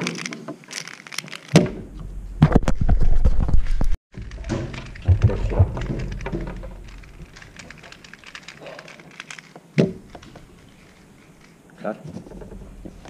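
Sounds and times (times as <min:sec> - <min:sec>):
small clicks: 0:05.8 - 0:11.6.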